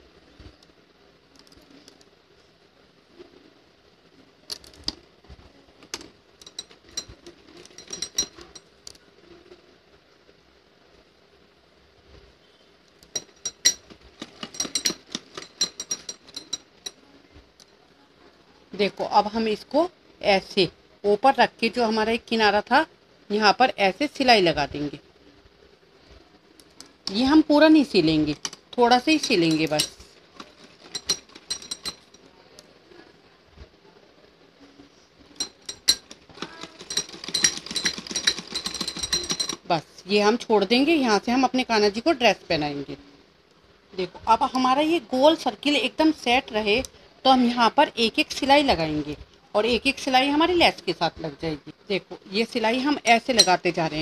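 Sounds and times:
bangles clinking: 0:05.9 - 0:09.0, 0:13.0 - 0:17.0, 0:27.9 - 0:32.3, 0:35.4 - 0:39.7, 0:52.4 - 0:54.0
sewing machine stitching: 0:35.8 - 0:39.7.

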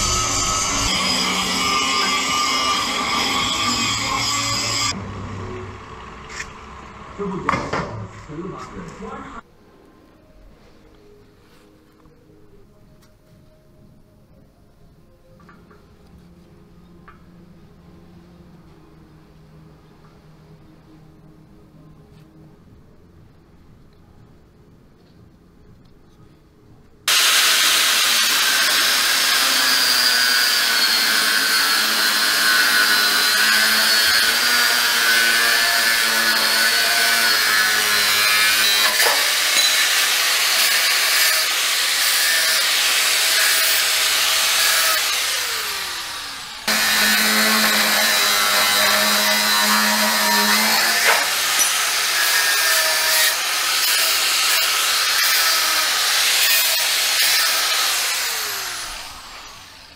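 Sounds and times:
angle grinder grinding metal: 0:00.0 - 0:05.0, 0:27.1 - 0:59.9.

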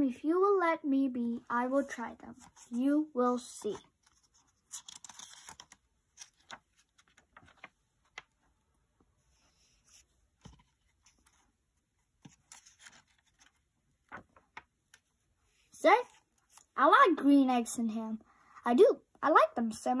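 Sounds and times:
book page turning: 0:03.4 - 0:08.6, 0:09.2 - 0:15.1, 0:16.0 - 0:16.8.

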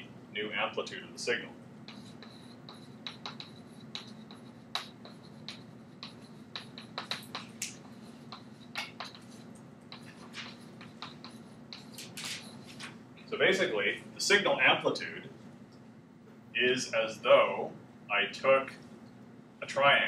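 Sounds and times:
steady low hum: 0:00.0 - 0:20.0
chalk tapping and scratching: 0:01.8 - 0:13.0.

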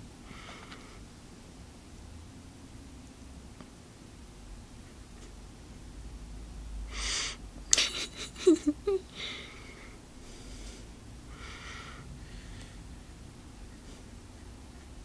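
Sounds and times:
soft breathy puffs: 0:09.1 - 0:13.1.

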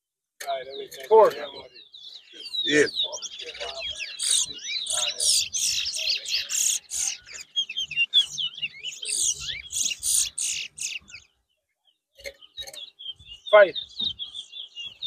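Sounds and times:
finch twittering song: 0:00.4 - 0:15.0
short bird notes: 0:00.5 - 0:11.4.

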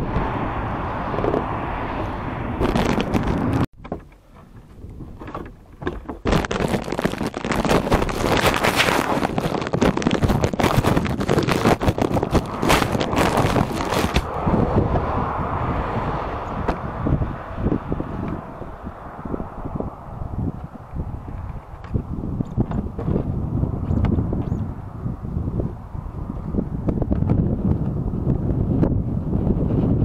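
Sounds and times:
wind rushing over microphone: 0:00.0 - 0:03.7, 0:04.6 - 0:30.0
plastic bag crinkling: 0:06.3 - 0:14.2.

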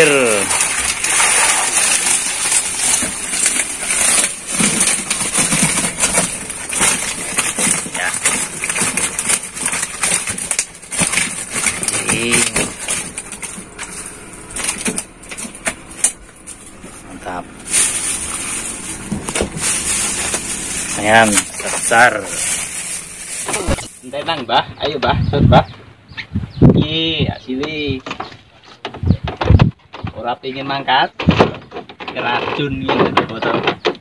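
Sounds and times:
water splashing off netting: 0:00.0 - 0:24.0.

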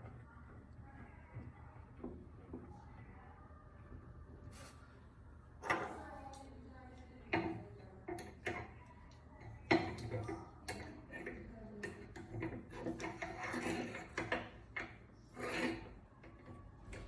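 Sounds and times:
rubbing and scraping: 0:15.2 - 0:16.1.

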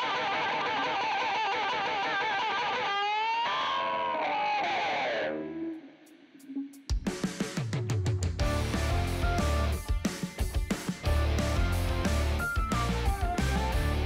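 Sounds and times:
distorted electric guitar: 0:00.0 - 0:14.0.

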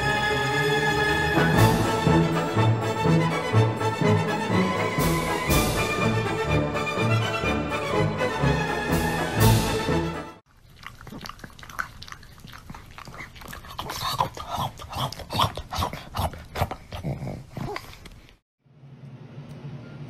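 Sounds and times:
music: 0:00.0 - 0:10.4
dog grunting and whining: 0:12.4 - 0:18.2.

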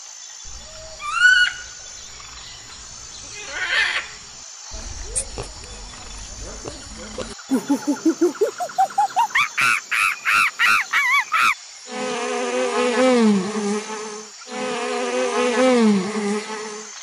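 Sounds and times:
wasps buzzing: 0:00.5 - 0:09.3
high arching animal calls: 0:00.5 - 0:11.6.

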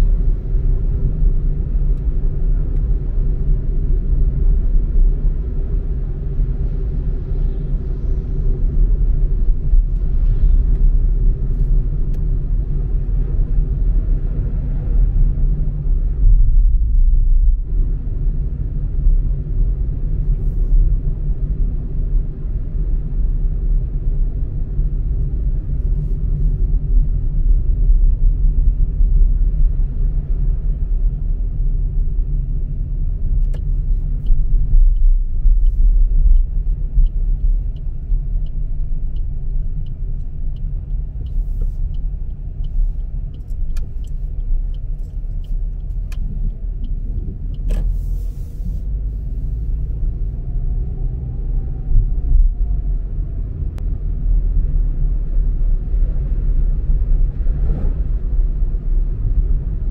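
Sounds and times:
car engine and road noise: 0:00.0 - 0:59.9
light regular ticking: 0:33.5 - 0:47.8.

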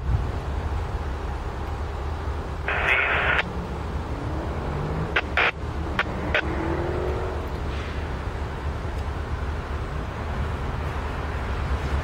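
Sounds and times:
locomotive engine rumble: 0:00.0 - 0:12.0
radio static hiss: 0:02.5 - 0:03.8, 0:04.7 - 0:06.8
sharp clicks: 0:05.1 - 0:06.5.

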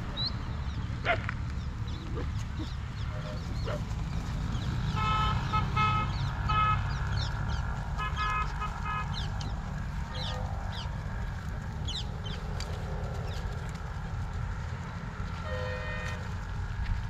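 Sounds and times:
vehicle horn honking: 0:04.8 - 0:06.9, 0:08.0 - 0:09.3, 0:15.4 - 0:16.3.

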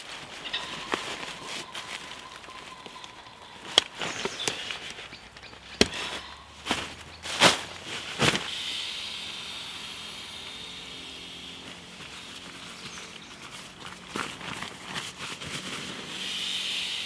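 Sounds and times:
camping gear rustling: 0:00.0 - 0:08.5, 0:09.2 - 0:16.9
steady hiss: 0:08.2 - 0:13.2, 0:15.8 - 0:17.0.

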